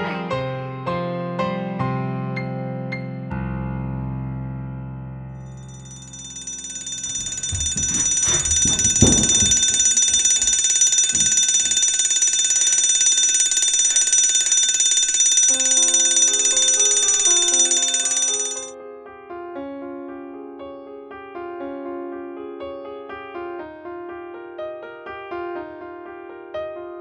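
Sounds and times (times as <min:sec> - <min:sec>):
piano music: 0:00.0 - 0:14.6, 0:15.4 - 0:27.0
electric bell ringing: 0:05.5 - 0:18.8
dull thumps: 0:07.0 - 0:10.6.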